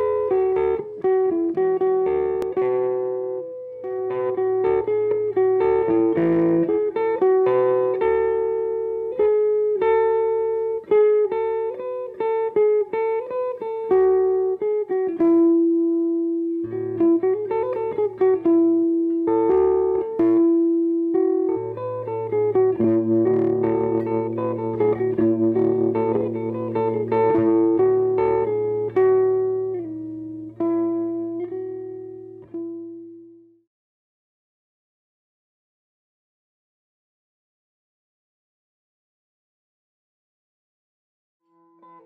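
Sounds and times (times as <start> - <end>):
plucked guitar melody: 0.0 - 33.6, 41.5 - 42.0.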